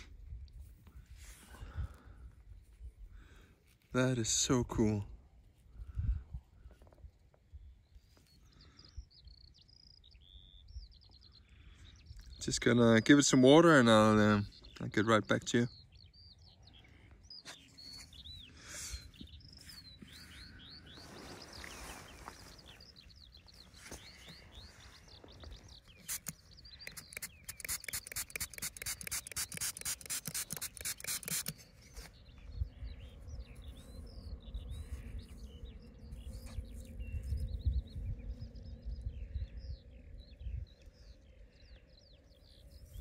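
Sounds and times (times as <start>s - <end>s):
small birds chirping: 0.0s - 43.0s
quick run of clicks: 26.0s - 31.7s.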